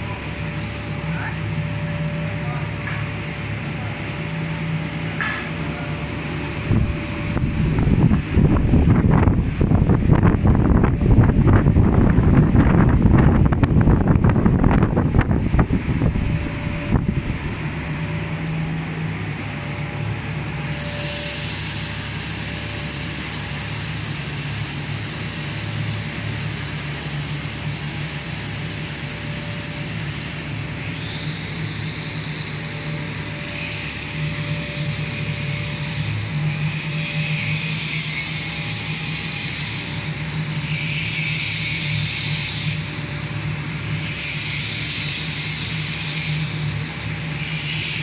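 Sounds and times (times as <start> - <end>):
machinery hum: 0.0 - 48.0
wind buffeting microphone: 6.6 - 17.8
high hiss: 20.6 - 33.8.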